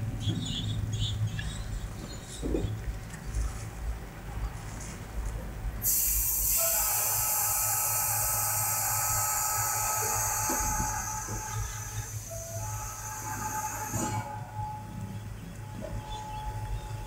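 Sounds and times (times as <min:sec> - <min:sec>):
compressed air hissing: 0:05.8 - 0:14.3.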